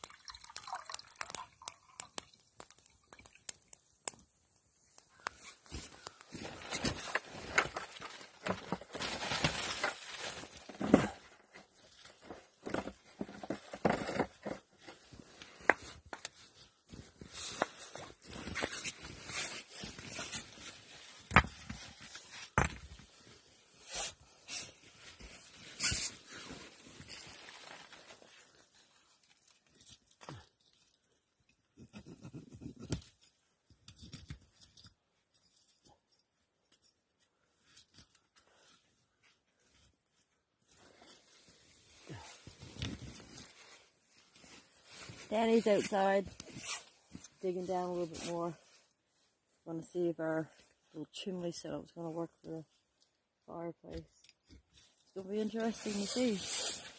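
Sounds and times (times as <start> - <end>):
stones scraping and knocking: 21.3 - 23.1.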